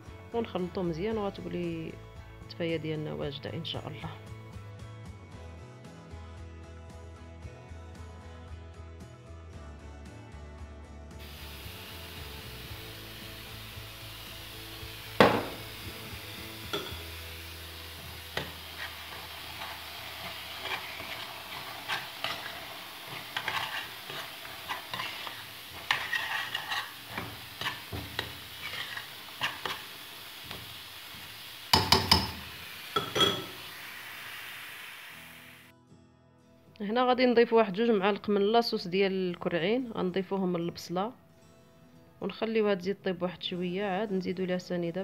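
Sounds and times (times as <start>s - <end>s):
onions sizzling: 11.2s - 35.7s
spoon scraping a steel pot: 18.4s - 29.9s.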